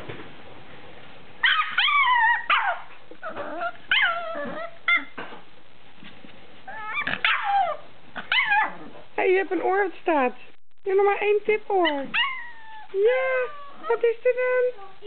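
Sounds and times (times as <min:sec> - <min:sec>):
dog yipping and whining: 0:01.4 - 0:05.2, 0:06.7 - 0:08.9, 0:12.1 - 0:13.9.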